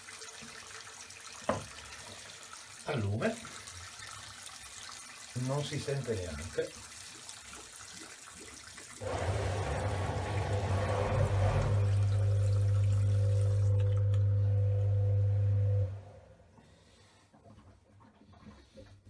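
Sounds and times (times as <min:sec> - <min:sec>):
water running from a tap: 0:00.0 - 0:15.8
low plumbing hum: 0:09.0 - 0:19.0.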